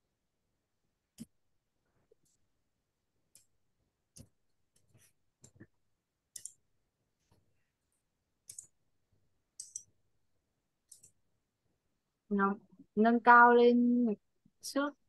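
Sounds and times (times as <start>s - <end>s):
faint small clicks and taps: 3.3s - 6.6s, 10.8s - 11.2s.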